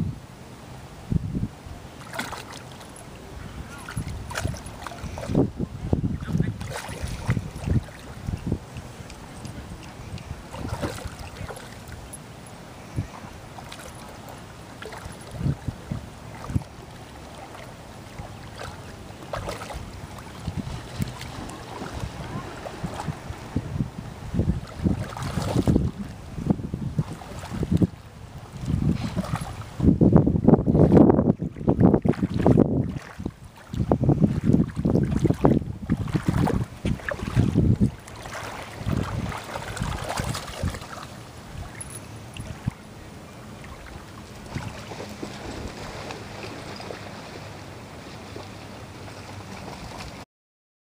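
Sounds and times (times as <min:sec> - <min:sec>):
wind rumble on microphone: 0:00.0 - 0:50.2
dog splashing in water: 0:02.0 - 0:02.9, 0:10.5 - 0:12.0, 0:18.3 - 0:23.2, 0:24.7 - 0:26.0, 0:35.0 - 0:42.6
dog splashing in shallow water: 0:02.0 - 0:12.2, 0:13.0 - 0:23.6, 0:24.4 - 0:26.2, 0:26.9 - 0:29.9, 0:30.5 - 0:50.2.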